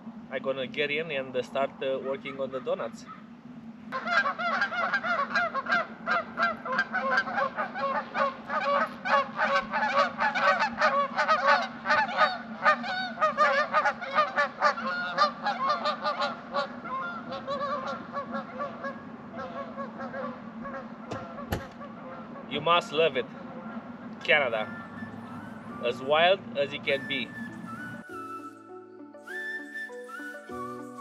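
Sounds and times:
geese honking: 0:03.9 - 0:28.6.

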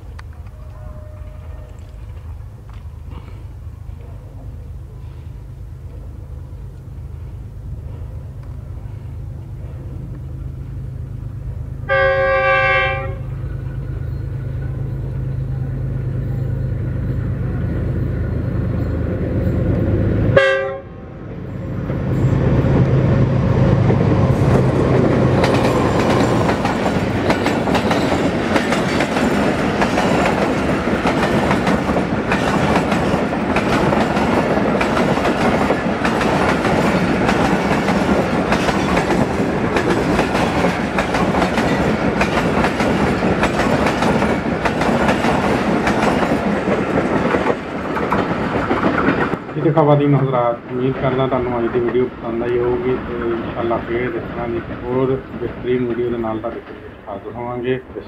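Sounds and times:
diesel locomotive engine drone: 0:00.0 - 0:58.0
train horn: 0:00.4 - 0:02.1, 0:11.8 - 0:13.4, 0:20.3 - 0:21.2
train wheels clattering over rail joints: 0:23.9 - 0:52.0.

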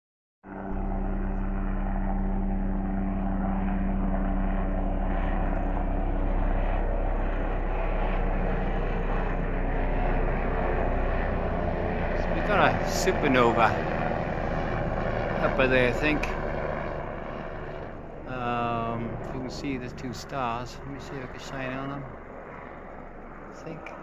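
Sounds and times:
helicopter engine and rotor drone: 0:00.5 - 0:24.0.

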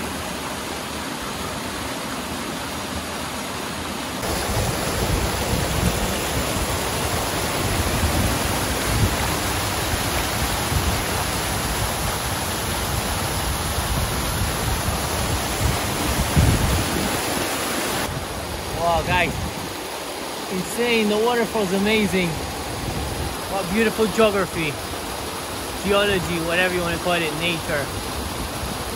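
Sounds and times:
waterfall rushing: 0:00.0 - 0:28.9.

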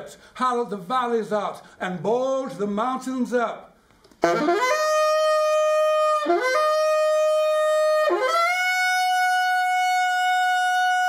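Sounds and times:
saxophone holding long notes: 0:04.2 - 0:11.0.

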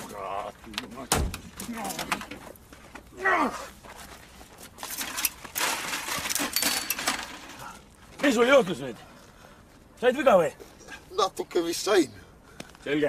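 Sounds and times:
scuffling and clattering fall: 0:03.8 - 0:07.6.

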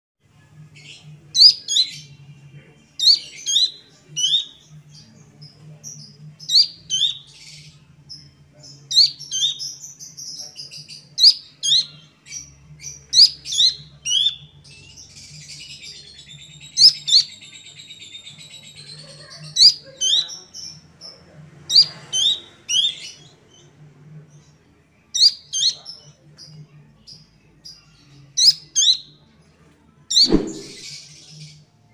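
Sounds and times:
bird whistling downward-slurred notes: 0:30.1 - 0:31.0.

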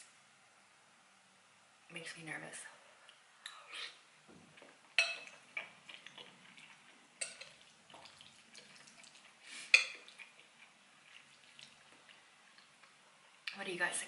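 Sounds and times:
wet chewing and mouth sounds: 0:03.0 - 0:13.6
metal spoon clinking on ceramic bowl: 0:05.0 - 0:05.4.

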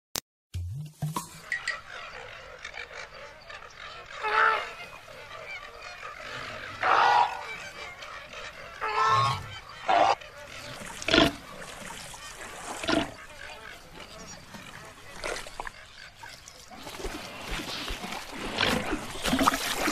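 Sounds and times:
flamingos honking: 0:01.3 - 0:16.4.

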